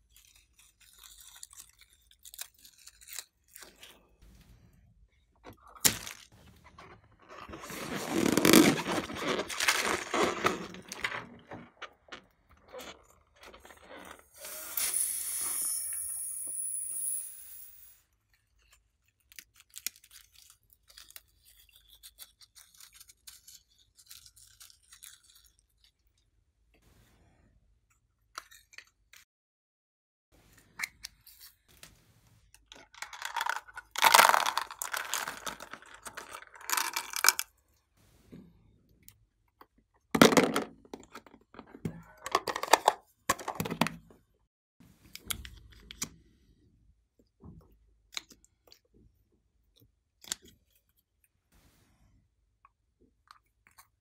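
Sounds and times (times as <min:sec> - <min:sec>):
plastic crackling and tearing: 0:05.7 - 0:14.2, 0:32.6 - 0:37.5.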